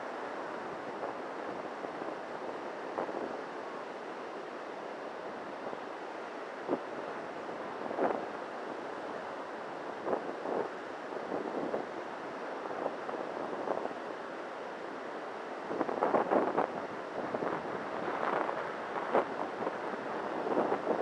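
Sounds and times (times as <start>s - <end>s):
surf rushing: 0.0s - 21.0s
wind: 0.0s - 21.0s
wind buffeting microphone: 10.0s - 12.0s, 15.6s - 21.0s.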